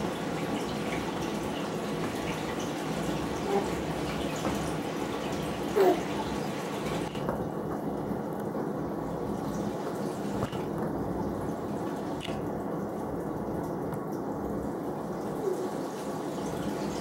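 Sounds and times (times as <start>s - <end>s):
baby cooing: 3.4s - 3.9s, 5.7s - 6.3s, 15.3s - 15.9s.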